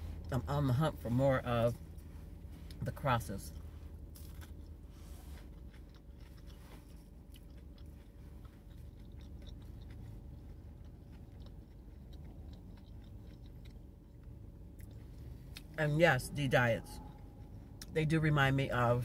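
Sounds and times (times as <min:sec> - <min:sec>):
low steady hum: 0:00.0 - 0:19.0
person chewing crunchy food: 0:03.4 - 0:15.8.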